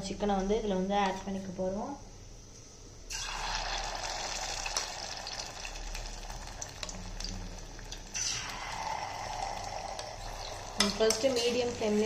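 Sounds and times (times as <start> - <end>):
chicken sizzling in hot oil: 3.1 - 12.0.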